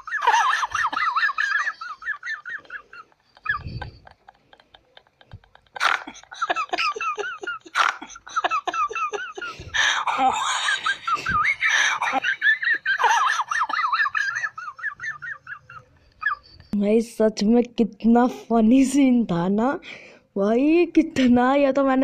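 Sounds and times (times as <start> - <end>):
high-pitched laughing: 0.0 - 16.8.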